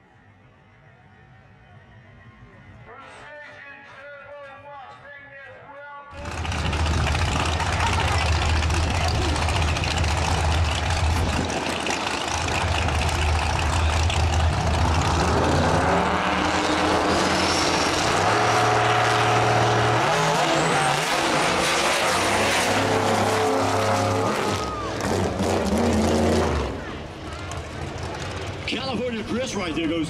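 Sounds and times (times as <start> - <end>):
race engines revving: 6.2 - 30.0.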